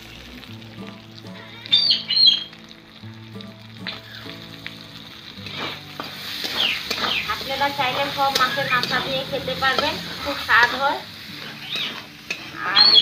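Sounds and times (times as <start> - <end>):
soft background music: 0.0 - 13.0
tomatoes sizzling in oil: 0.0 - 13.0
metal spatula scraping pan: 5.4 - 13.0.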